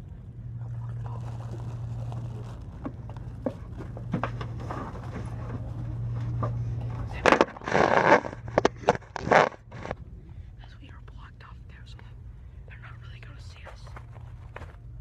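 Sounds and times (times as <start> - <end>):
steady low hum: 0.0 - 15.0
faint rustles and knocks: 1.1 - 10.0, 13.5 - 15.0.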